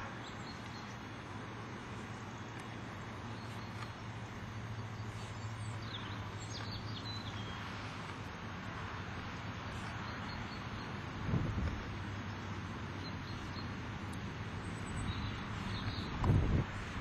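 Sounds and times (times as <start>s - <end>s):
bird chirps: 14.7s - 16.2s.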